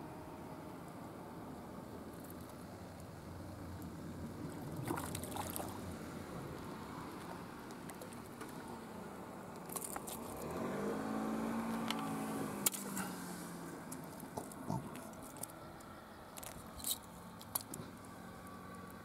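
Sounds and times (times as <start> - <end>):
steady outdoor noise: 0.0 - 19.0
motor engine droning: 3.2 - 16.9
splashes: 4.5 - 5.9.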